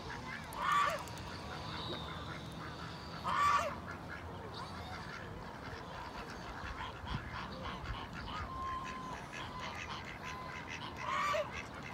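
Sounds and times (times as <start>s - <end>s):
geese and ducks calling: 0.0s - 11.9s.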